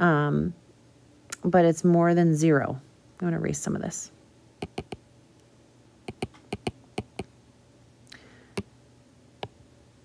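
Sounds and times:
stylus tapping on glass screen: 4.6 - 5.0, 6.1 - 7.3.

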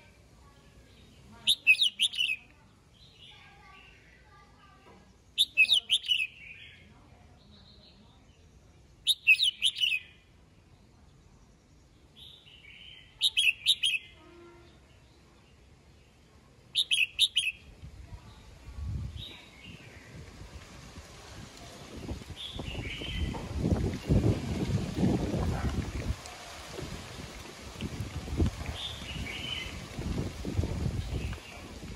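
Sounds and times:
bird singing short phrases: 0.5 - 4.4, 5.4 - 10.3, 12.1 - 15.6, 16.7 - 20.2, 22.0 - 23.4, 28.8 - 29.8.

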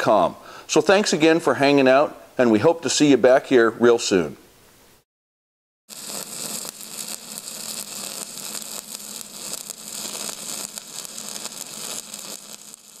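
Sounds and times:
crackling hiss: 5.9 - 13.0.

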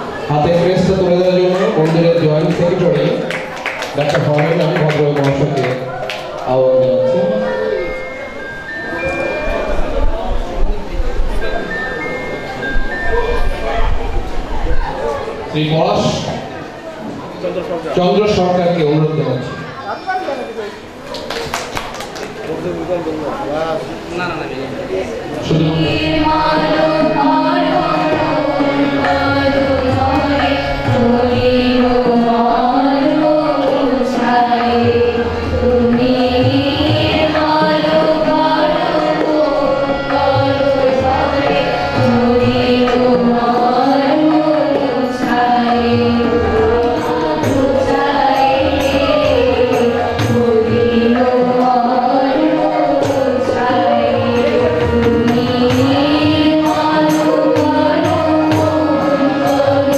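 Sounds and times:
drum beating: 25.4 - 59.9
girls singing together: 25.4 - 59.9
harmonium: 25.4 - 59.9.

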